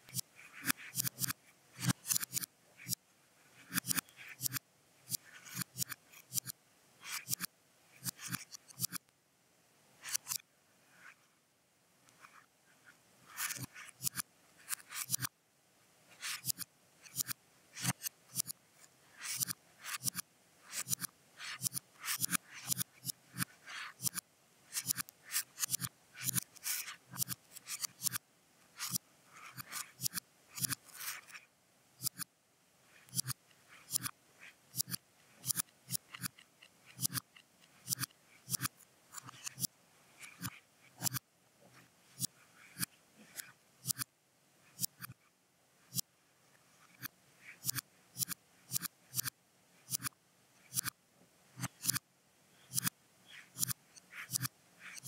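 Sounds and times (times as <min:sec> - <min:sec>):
quick clicking and scratching: 0:00.0 - 0:03.0, 0:03.6 - 0:09.1, 0:10.0 - 0:10.4, 0:13.3 - 0:15.3, 0:16.1 - 0:28.2, 0:28.8 - 0:31.4, 0:32.0 - 0:32.3, 0:32.9 - 0:44.1, 0:44.8 - 0:45.2, 0:46.8 - 0:49.3, 0:49.9 - 0:51.0, 0:51.6 - 0:52.0, 0:52.7 - 0:55.0.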